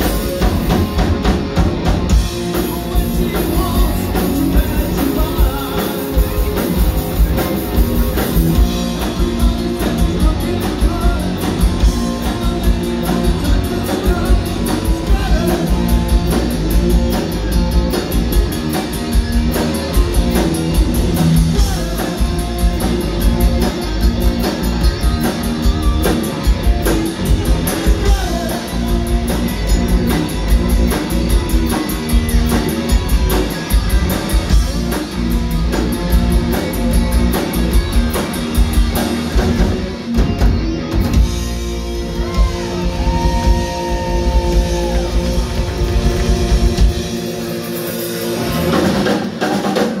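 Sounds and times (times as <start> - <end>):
bass guitar: 0.0 - 50.0
distorted electric guitars: 0.0 - 50.0
drum kit: 0.0 - 50.0
person singing: 3.0 - 6.6, 8.8 - 16.5, 21.5 - 23.0, 27.6 - 29.4.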